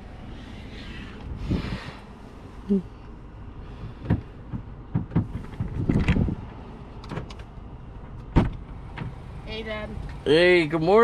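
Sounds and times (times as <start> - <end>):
knocks clicks and rustles in car: 3.9 - 9.2
car door shutting: 8.3 - 9.2.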